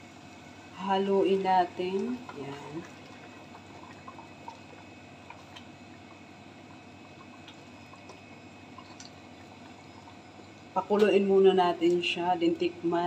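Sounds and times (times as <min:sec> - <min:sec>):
liquid sloshing in a pot: 0:01.3 - 0:10.8.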